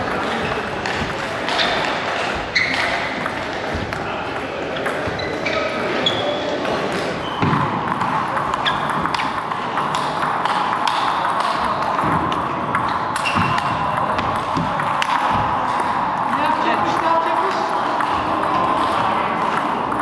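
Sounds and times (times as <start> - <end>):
steady background noise: 0.0 - 20.0
table tennis ball clicking: 7.4 - 16.3.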